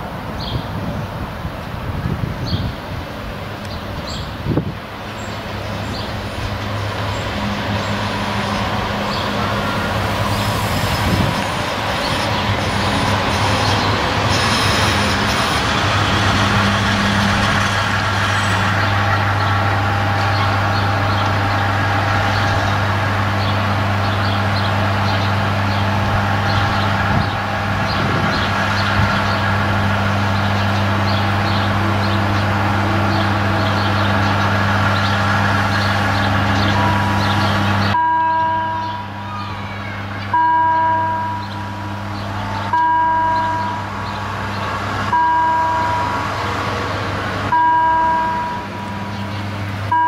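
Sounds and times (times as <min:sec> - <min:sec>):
railcar diesel engine idling: 0:00.0 - 0:50.0
level-crossing warning bell ringing: 0:36.0 - 0:42.0, 0:42.6 - 0:44.0, 0:45.1 - 0:46.2, 0:47.5 - 0:49.1.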